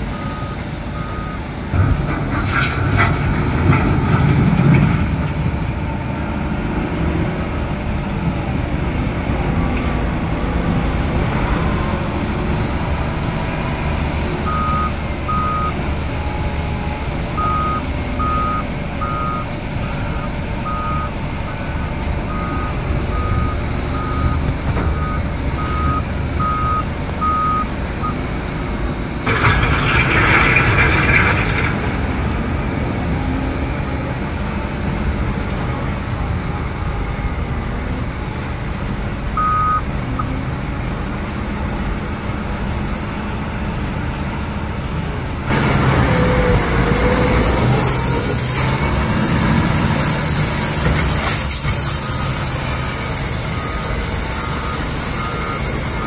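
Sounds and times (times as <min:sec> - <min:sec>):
diesel engine running: 0:00.0 - 0:56.0
reversing alarm beeping: 0:00.1 - 0:01.5, 0:14.4 - 0:28.2, 0:39.4 - 0:40.3, 0:51.7 - 0:56.0
gravel spilling from bucket: 0:29.3 - 0:32.6.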